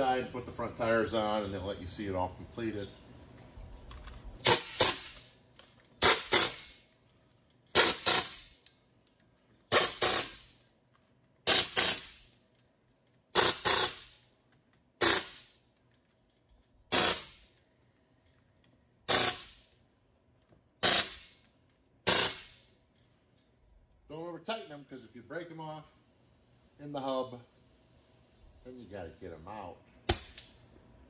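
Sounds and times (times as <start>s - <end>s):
air wrench bursts: 4.4s - 6.9s, 7.7s - 8.6s, 9.7s - 10.6s, 11.4s - 12.4s, 13.3s - 14.3s, 15.0s - 15.6s, 16.9s - 17.6s, 19.1s - 19.7s, 20.8s - 21.4s, 22.0s - 22.7s.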